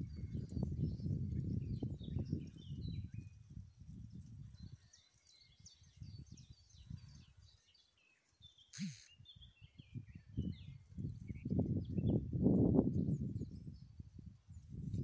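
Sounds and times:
songbirds chirping and whistling: 0:00.0 - 0:03.5, 0:04.4 - 0:12.3
wind buffeting microphone: 0:00.0 - 0:07.4, 0:08.8 - 0:15.0.

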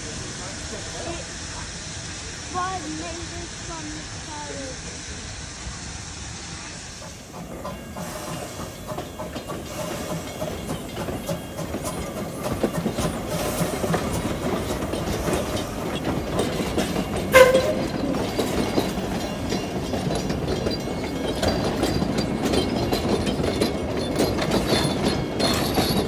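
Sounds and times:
steam train rolling past: 0:00.0 - 0:26.0
wheels clanking over rail joints: 0:07.0 - 0:26.0.

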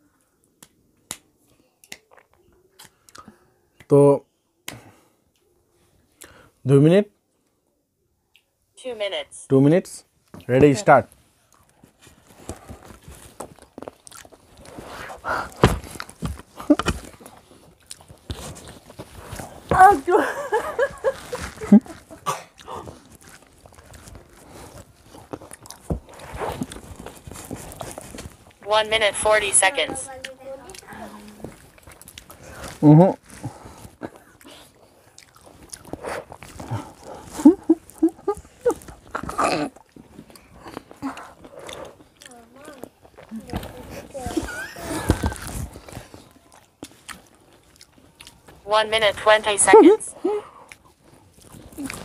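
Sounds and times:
people chewing grapes: 0:01.4 - 0:03.8, 0:11.2 - 0:28.6, 0:30.1 - 0:48.7, 0:50.1 - 0:52.0.

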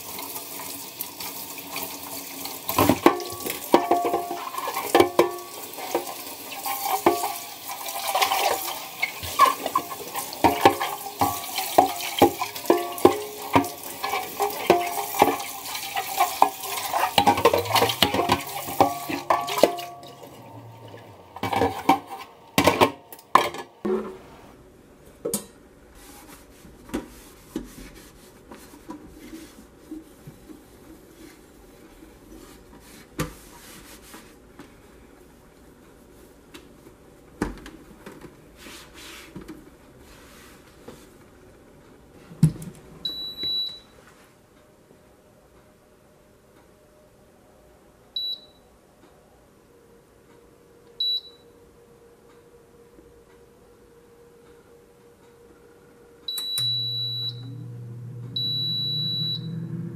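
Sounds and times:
tap water running: 0:00.0 - 0:24.2
basket knocking against a sink: 0:02.7 - 0:05.5, 0:10.4 - 0:13.8
cloth wiping and tapping: 0:26.0 - 0:30.6.

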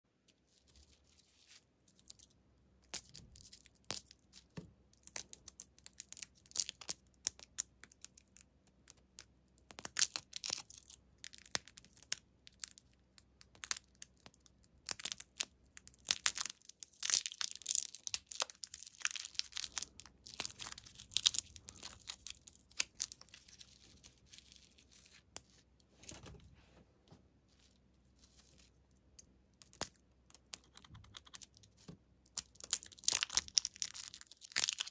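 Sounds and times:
plastic wrappers crackling: 0:17.1 - 0:25.3.

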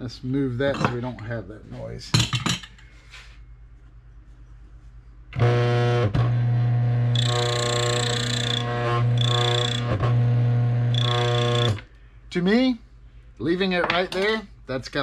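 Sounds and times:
coffee grinder motor humming: 0:05.4 - 0:11.9.

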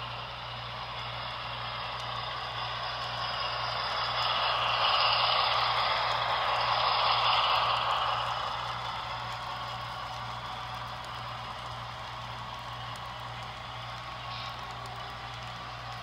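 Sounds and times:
model train wheels rattling: 0:00.0 - 0:16.0
steady low hum: 0:00.0 - 0:16.0.

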